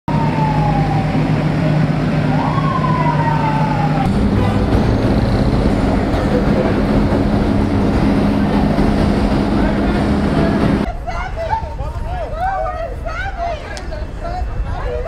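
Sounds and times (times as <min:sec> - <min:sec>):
emergency siren wailing: 0:00.1 - 0:10.9
engine rumble: 0:00.1 - 0:15.0
street traffic rumble: 0:00.1 - 0:15.0.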